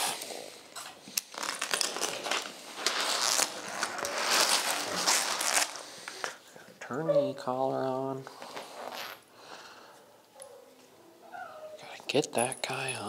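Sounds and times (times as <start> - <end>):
dog collar rustling and clicking: 12.2 - 13.0.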